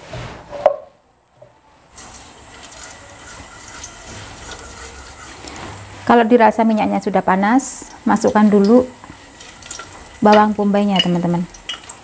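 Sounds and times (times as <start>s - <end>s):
faint stove hum: 1.3s - 12.0s
oil hissing in a wok: 1.9s - 6.0s, 7.6s - 12.0s.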